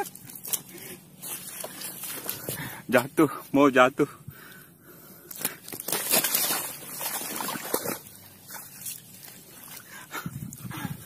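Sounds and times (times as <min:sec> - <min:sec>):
fish flapping and rustling: 0:00.0 - 0:02.7, 0:05.3 - 0:10.7.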